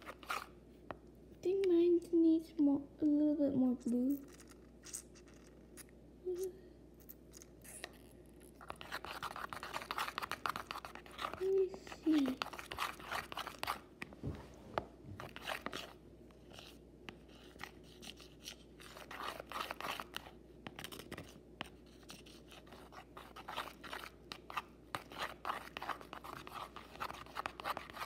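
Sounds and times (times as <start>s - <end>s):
utensil stirring slime in bowl: 0.0s - 1.0s, 7.0s - 28.0s.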